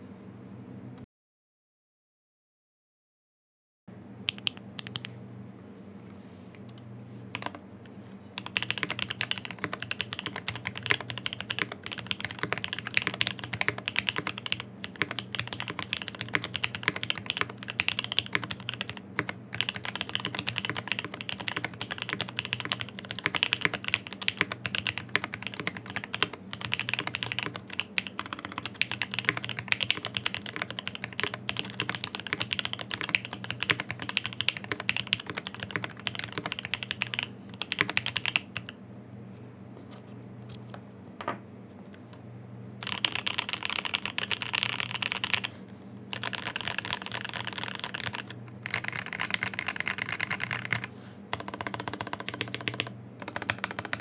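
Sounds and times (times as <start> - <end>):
mechanical keyboard typing: 7.4 - 7.6, 8.4 - 38.8, 42.8 - 45.5, 46.1 - 54.0.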